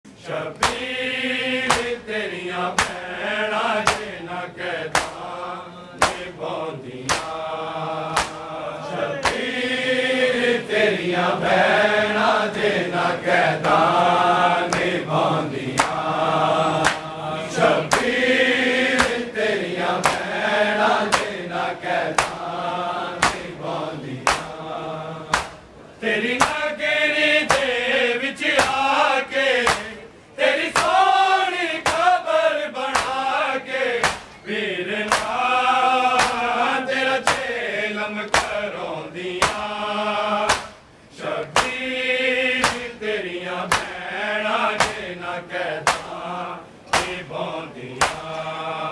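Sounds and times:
men chanting in unison: 0:00.2 - 0:48.9
chest-beating slaps: 0:00.5 - 0:00.9, 0:01.6 - 0:02.0, 0:02.7 - 0:03.2, 0:03.8 - 0:04.2, 0:04.8 - 0:05.4, 0:06.0 - 0:06.4, 0:07.0 - 0:07.5, 0:08.1 - 0:08.6, 0:09.2 - 0:09.5, 0:14.7 - 0:15.0, 0:15.7 - 0:16.1, 0:16.8 - 0:17.2, 0:17.8 - 0:18.2, 0:18.9 - 0:19.4, 0:20.0 - 0:20.4, 0:21.0 - 0:22.5, 0:23.2 - 0:23.6, 0:24.2 - 0:24.6, 0:25.2 - 0:26.6, 0:27.4 - 0:27.8, 0:28.5 - 0:28.9, 0:29.6 - 0:30.0, 0:30.7 - 0:31.0, 0:31.8 - 0:32.2, 0:32.8 - 0:33.3, 0:34.0 - 0:34.4, 0:35.0 - 0:35.5, 0:36.1 - 0:36.6, 0:37.2 - 0:37.5, 0:38.3 - 0:38.7, 0:39.4 - 0:39.8, 0:40.5 - 0:40.8, 0:41.4 - 0:41.8, 0:42.6 - 0:42.9, 0:43.7 - 0:44.0, 0:44.8 - 0:45.1, 0:45.8 - 0:46.2, 0:46.9 - 0:47.3, 0:48.0 - 0:48.5.

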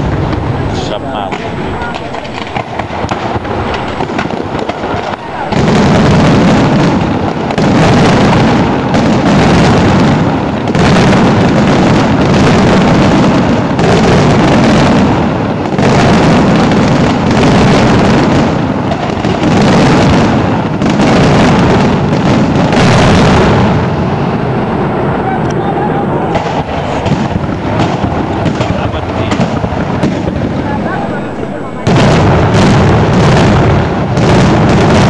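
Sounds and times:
fireworks shell bursts: 0:01.3 - 0:05.0.

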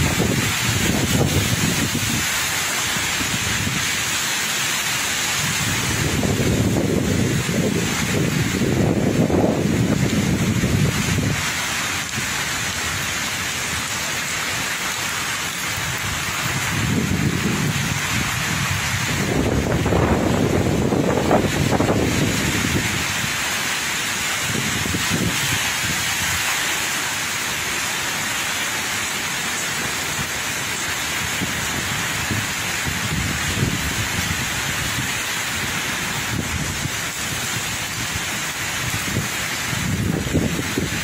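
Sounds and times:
wind gusts buffeting microphone: 0:00.0 - 0:02.4, 0:05.3 - 0:13.1, 0:15.8 - 0:23.5, 0:24.3 - 0:26.4, 0:31.3 - 0:35.2, 0:36.1 - 0:41.0
heavy rain hissing: 0:00.0 - 0:41.0.

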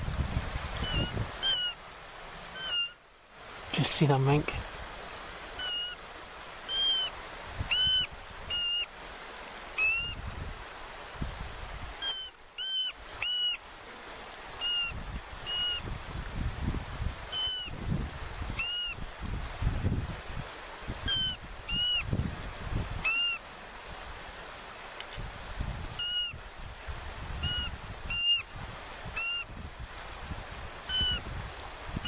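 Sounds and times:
sharp animal calls: 0:00.8 - 0:01.8, 0:02.5 - 0:03.0, 0:05.5 - 0:06.0, 0:06.6 - 0:08.9, 0:09.7 - 0:10.2, 0:12.0 - 0:13.6, 0:14.6 - 0:15.9, 0:17.3 - 0:17.8, 0:18.6 - 0:19.0, 0:21.0 - 0:22.1, 0:23.0 - 0:23.4, 0:26.0 - 0:26.4, 0:27.4 - 0:28.5, 0:29.2 - 0:29.5, 0:30.8 - 0:31.2.

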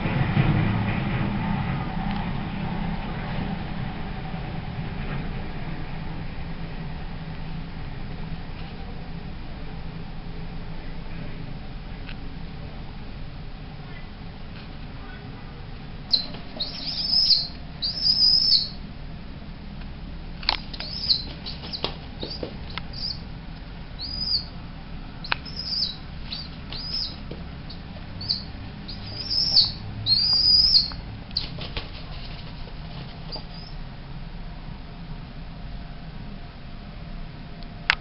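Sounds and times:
young pigeons squeaking: 0:16.1 - 0:18.8, 0:20.6 - 0:23.3, 0:24.0 - 0:24.6, 0:25.2 - 0:33.8.

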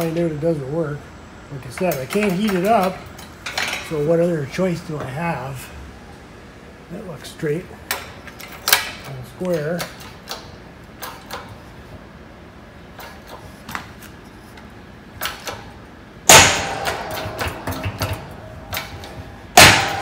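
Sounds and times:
bolt breaking with loud bang: 0:16.2 - 0:20.0
metallic ringing: 0:16.3 - 0:20.0.

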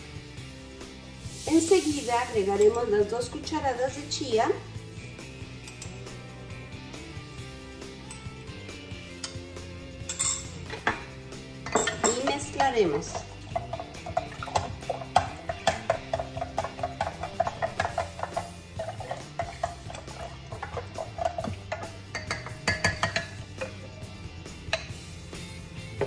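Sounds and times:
background music: 0:00.0 - 0:26.0
spoon knocking against glass: 0:20.6 - 0:23.4.

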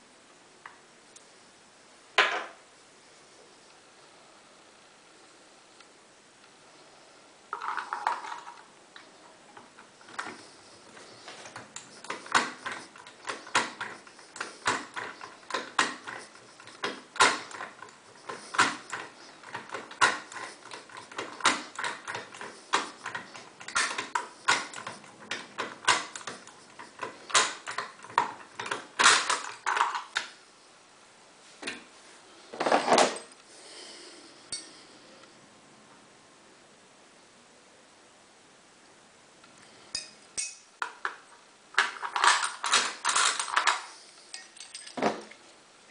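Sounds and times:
lock picks clicking: 0:11.4 - 0:30.3, 0:41.8 - 0:45.0.

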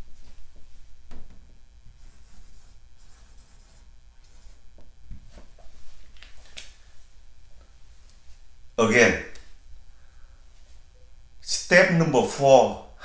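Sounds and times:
marker scratching on whiteboard: 0:01.9 - 0:04.6.

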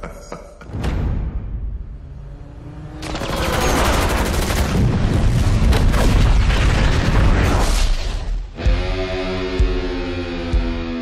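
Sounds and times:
action film music: 0:00.6 - 0:11.0
explosions: 0:03.2 - 0:08.4.

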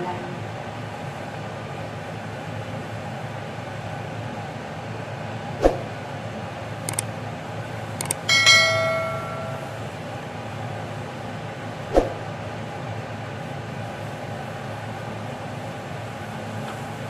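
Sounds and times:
steady low hum: 0:00.0 - 0:17.0
quick double clicks: 0:06.9 - 0:07.1, 0:08.0 - 0:08.3
bright bell ding: 0:08.1 - 0:09.9.

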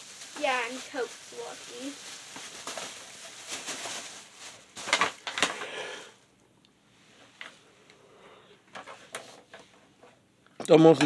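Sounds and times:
plastic bag rustling: 0:00.0 - 0:06.2.

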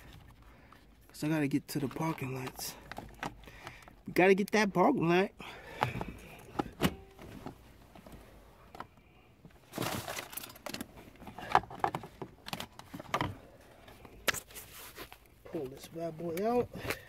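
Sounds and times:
rustling of wiring: 0:07.2 - 0:17.0.

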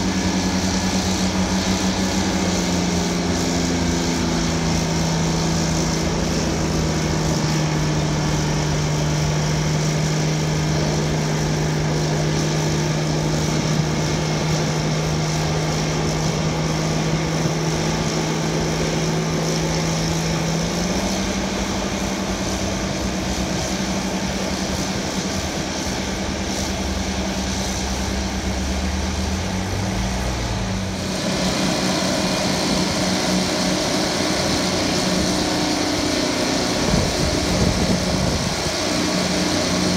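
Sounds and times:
diesel engines running hard: 0:00.0 - 0:39.9
dozer blade pushing dirt: 0:30.8 - 0:39.9.

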